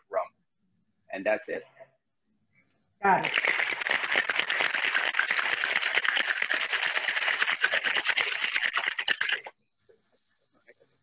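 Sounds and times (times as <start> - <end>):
ice rattling in cocktail shaker: 3.2 - 9.5.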